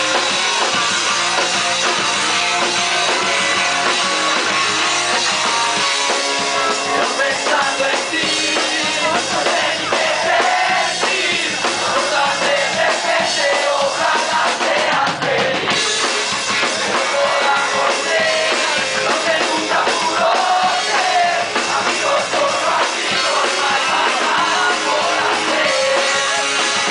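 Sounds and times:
drum kit: 0.0 - 26.9
electric guitars: 0.0 - 26.9
man singing: 6.6 - 15.8, 16.6 - 26.9.

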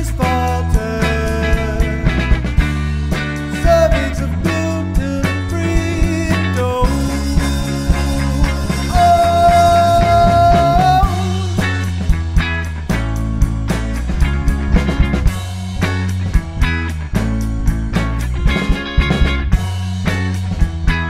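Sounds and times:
rock band instrumental music: 0.0 - 21.0
lead guitar long bending note: 5.9 - 12.0.

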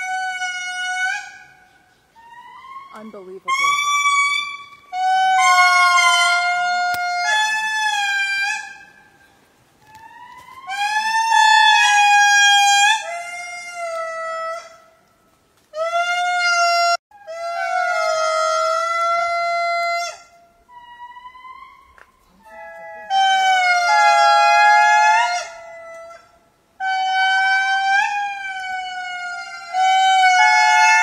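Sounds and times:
lemur calling: 0.0 - 14.8.

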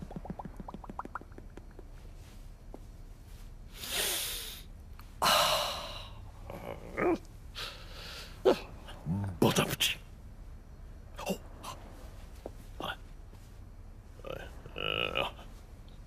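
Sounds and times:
loud breaths: 7.6 - 8.4.

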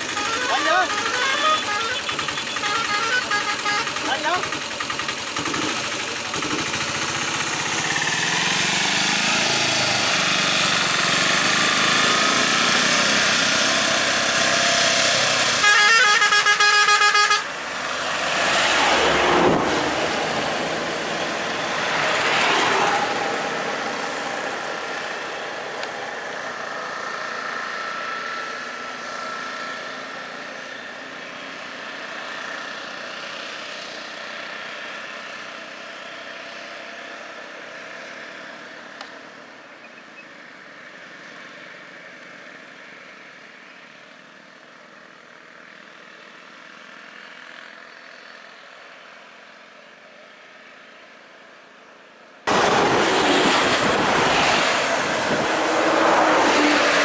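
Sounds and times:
vehicle horn blast: 0.0 - 4.3, 15.5 - 17.6
road traffic: 0.0 - 57.0.

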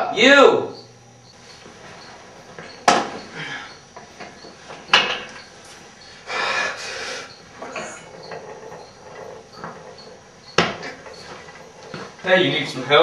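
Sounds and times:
rustling hiss: 1.4 - 13.0
sharp knocks on weight bench: 2.8 - 3.2, 10.5 - 10.9.

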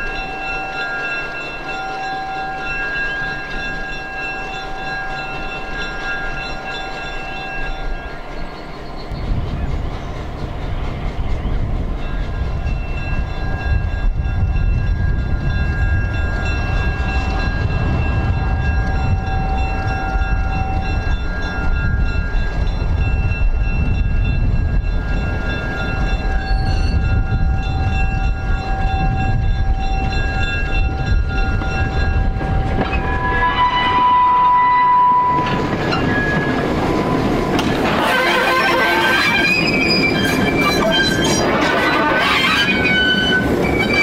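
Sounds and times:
diesel locomotive engine rumbling: 0.0 - 44.0
engine whine: 35.2 - 39.6.

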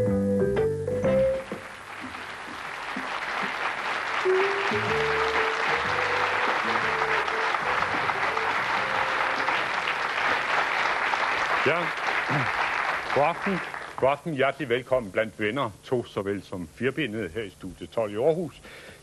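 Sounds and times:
studio audience applauding: 1.4 - 14.2
tv theme tune: 4.1 - 10.4.

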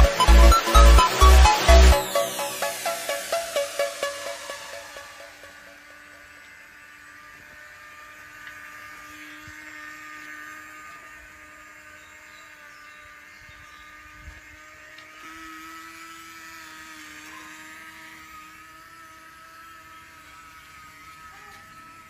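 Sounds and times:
small electric motor whining: 0.0 - 22.0.

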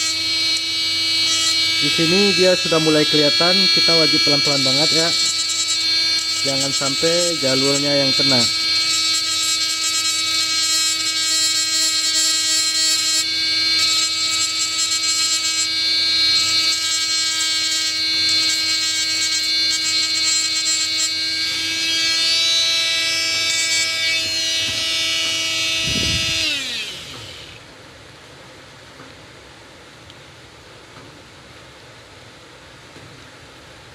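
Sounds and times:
burr grinding chip: 0.0 - 27.6
rotary tool high whine: 0.0 - 27.8.

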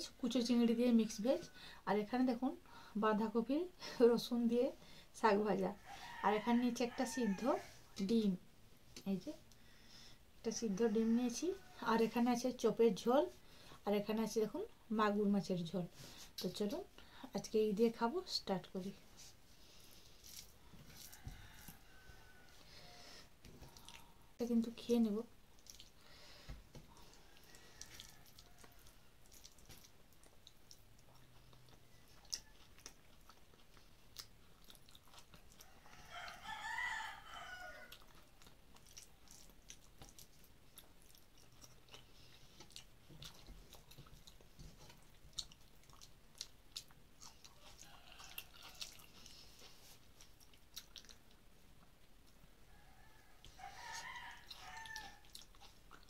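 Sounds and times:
rooster crowing: 5.8 - 7.8, 20.9 - 23.2, 27.0 - 28.9, 35.7 - 38.0, 47.8 - 49.1, 52.7 - 55.4
chewing: 19.6 - 24.2, 25.5 - 26.1, 26.8 - 52.5, 53.2 - 56.0.

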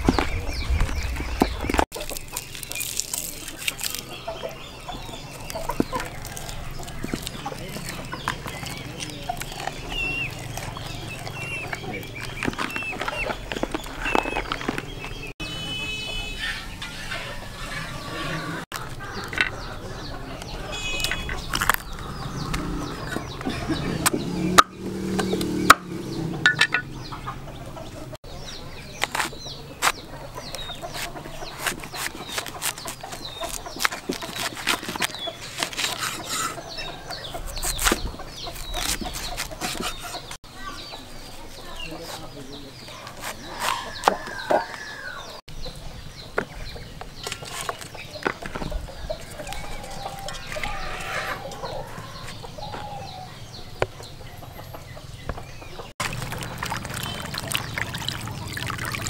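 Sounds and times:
chickens clucking: 0.0 - 59.0
cleaver chopping on wooden board: 22.5 - 26.9.

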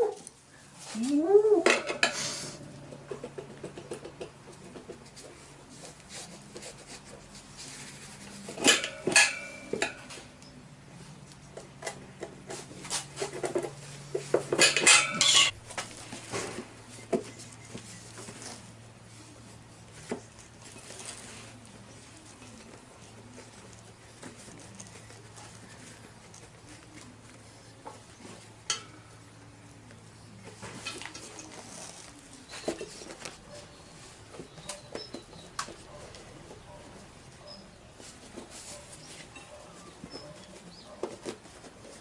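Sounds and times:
metal tools scraping wheel rim: 8.3 - 10.2, 14.5 - 15.6
ringing metallic clanks: 8.6 - 10.1, 14.6 - 15.6.

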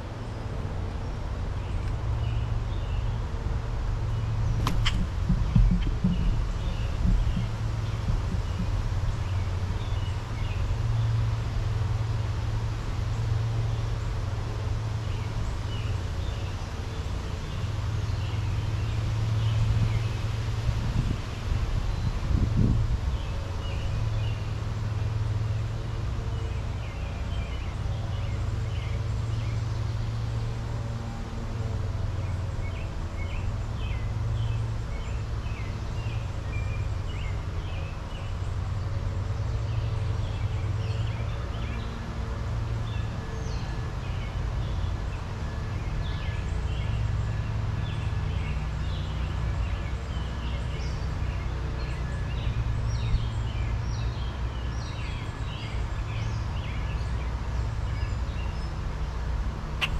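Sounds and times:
steady low rumble: 0.0 - 12.9, 59.4 - 59.9
songbirds chirping: 0.0 - 59.9.

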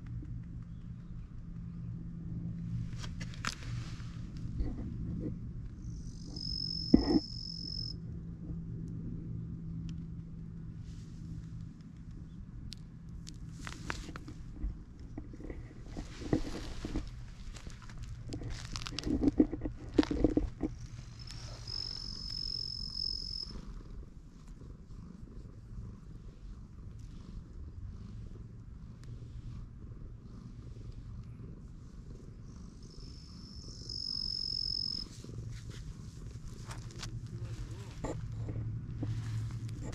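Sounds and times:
cat purring: 0.0 - 39.9
low steady hum: 0.0 - 39.9
insect trilling: 5.8 - 8.0, 21.2 - 23.6, 32.8 - 35.1.

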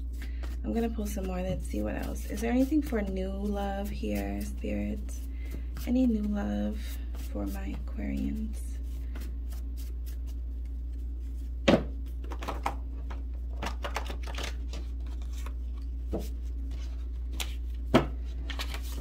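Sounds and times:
cards shuffling: 12.1 - 19.0.

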